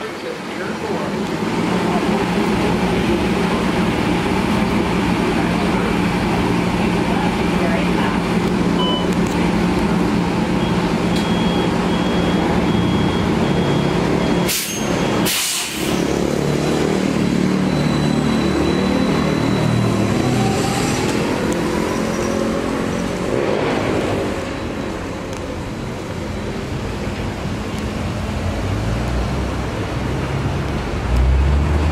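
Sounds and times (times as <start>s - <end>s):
bus engine idling hum: 0.0s - 20.3s, 24.0s - 31.2s
bus whine pulling away: 0.0s - 31.9s
compressed air hisses: 15.3s - 15.9s.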